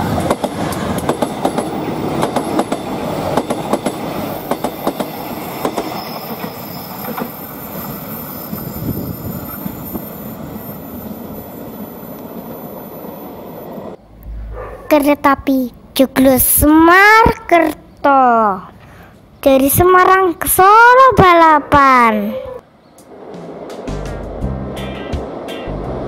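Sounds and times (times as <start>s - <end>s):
train wheels clacking on rail joints: 0.0s - 8.0s
passing train rumble: 0.0s - 15.0s, 22.6s - 26.0s.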